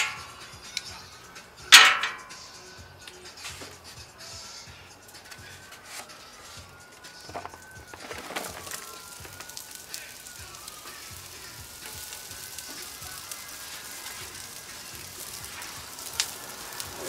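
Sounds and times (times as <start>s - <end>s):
onions sizzling on a griddle: 0.0s - 0.6s, 5.4s - 17.0s.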